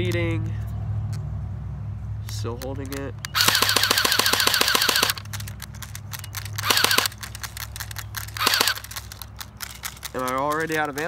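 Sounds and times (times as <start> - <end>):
airsoft gun firing full auto: 3.3 - 10.7
mechanical whine: 3.4 - 9.2.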